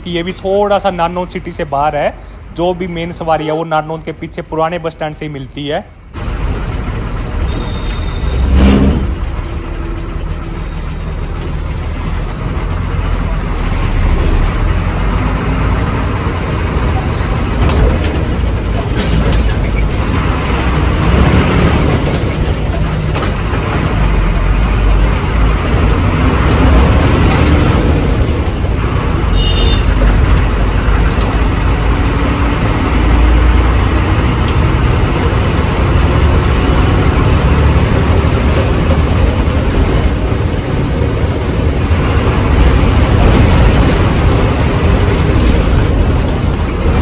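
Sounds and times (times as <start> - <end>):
bus engine drone: 0.0 - 47.0
road rumble: 0.0 - 47.0
high beep: 7.5 - 8.5.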